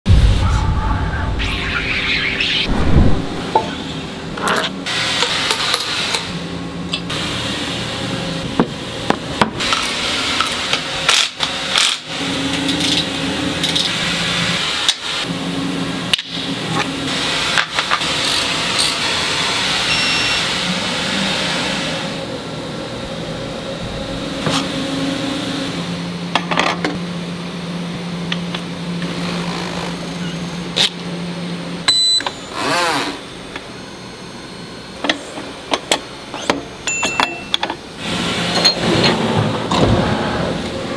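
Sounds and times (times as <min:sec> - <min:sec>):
steady machine hum: 0:00.1 - 0:11.0, 0:19.2 - 0:32.6
metal parts clicking and clunking: 0:04.4 - 0:06.3.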